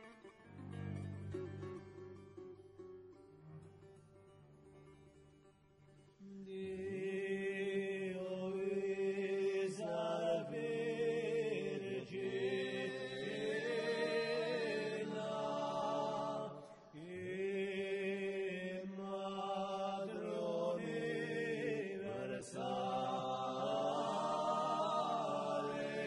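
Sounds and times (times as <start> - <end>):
men singing a cappella polyphony: 6.2 - 26.0.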